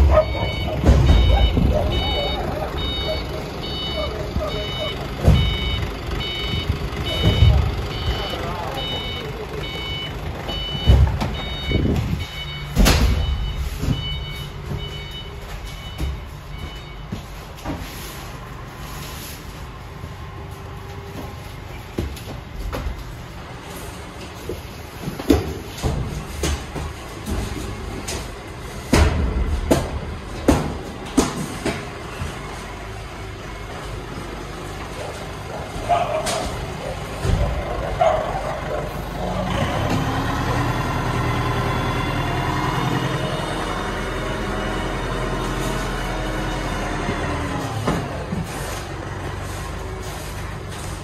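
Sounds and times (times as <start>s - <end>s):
reversing alarm beeping: 0.0s - 18.2s.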